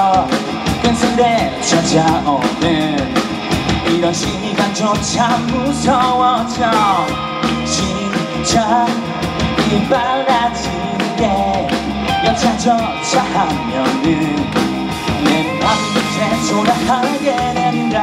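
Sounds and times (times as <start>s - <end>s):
drums: 0.0s - 18.0s
guitar: 0.0s - 18.0s
person singing: 0.0s - 18.0s.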